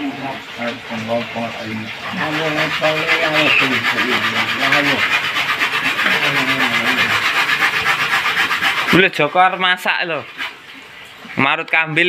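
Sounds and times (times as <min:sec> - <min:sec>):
coconut grating scrape: 0:01.2 - 0:10.6.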